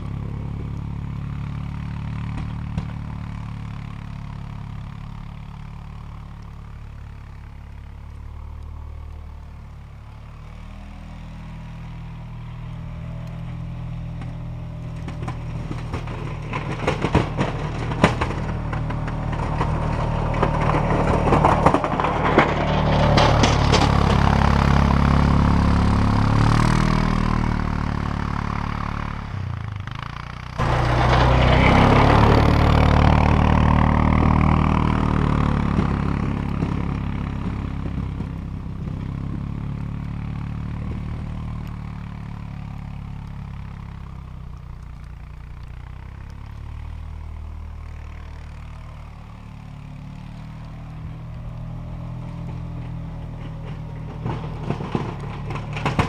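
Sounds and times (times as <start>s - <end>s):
quad bike engine revving: 15.0s - 42.8s, 50.0s - 56.0s.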